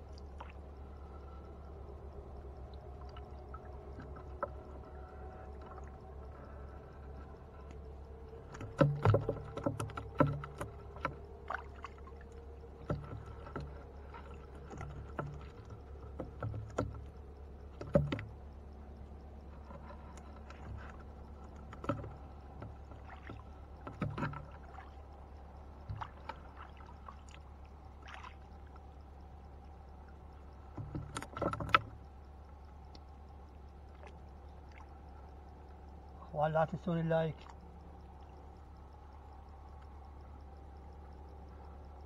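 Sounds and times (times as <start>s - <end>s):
steady low hum: 0.0s - 42.0s
knocks and taps in wooden boat: 8.4s - 12.1s, 12.7s - 18.5s, 19.4s - 25.0s, 25.7s - 26.6s, 30.6s - 32.1s.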